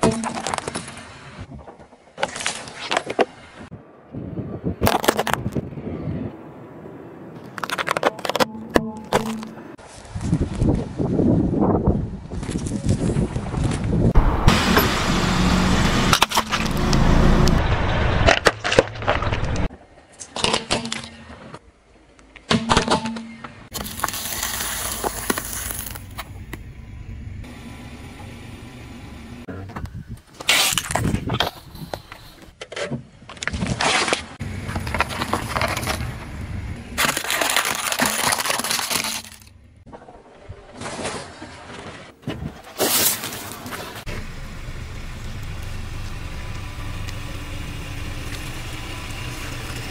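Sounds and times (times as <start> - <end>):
low tyre and car noise: 0.0 - 49.9
tyre crushing objects: 37.0 - 39.5.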